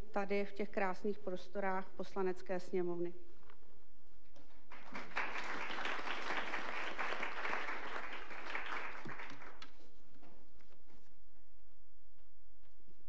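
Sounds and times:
audience applause: 0:04.7 - 0:09.7.

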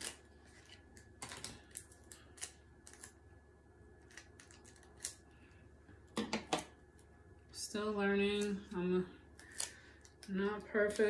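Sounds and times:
adhesive tape torn from roll: 0:00.0 - 0:03.2, 0:04.0 - 0:05.2.

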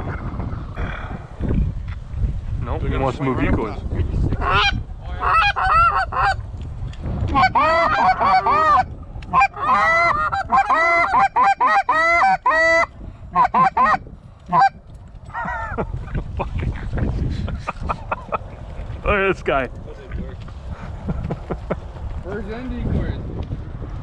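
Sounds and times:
goose honking: 0:07.3 - 0:14.8.

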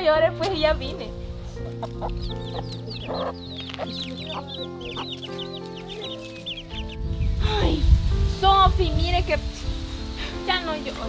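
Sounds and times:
background music: 0:00.0 - 0:11.0
chicks peeping: 0:01.3 - 0:07.8.

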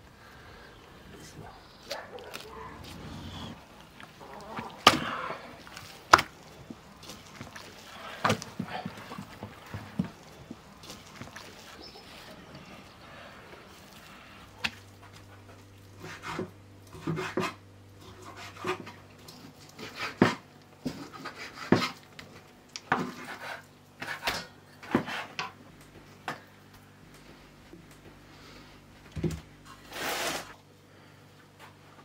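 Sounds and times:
wet scraping of meat: 0:01.2 - 0:22.4.

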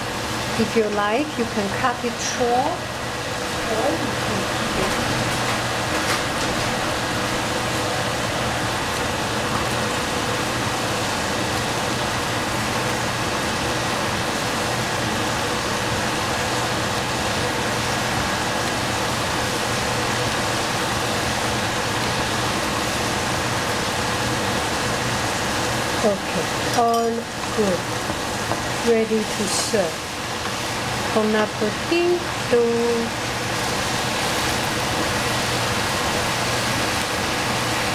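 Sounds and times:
food sizzling in a pan: 0:15.8 - 0:37.9.

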